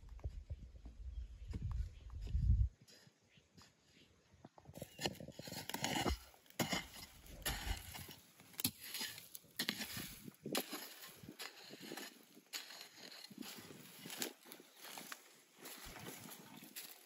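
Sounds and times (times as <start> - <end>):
hoe chopping into sandy soil: 5.6 - 13.4.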